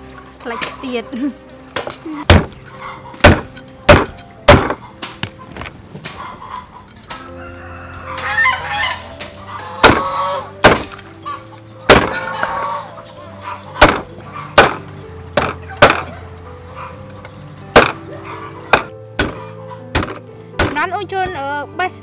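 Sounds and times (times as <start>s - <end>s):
background music with held notes: 0.0s - 22.0s
cleaver chopping on wooden block: 1.8s - 2.6s, 3.2s - 4.8s, 9.8s - 11.0s, 11.9s - 12.2s, 13.8s - 14.8s, 15.4s - 16.1s, 17.8s - 18.0s, 18.7s - 20.8s.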